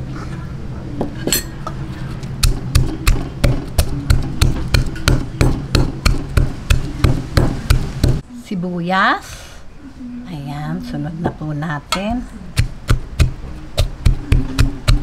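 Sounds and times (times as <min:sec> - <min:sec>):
pestle pounding in mortar: 0:02.4 - 0:08.2, 0:12.0 - 0:15.0.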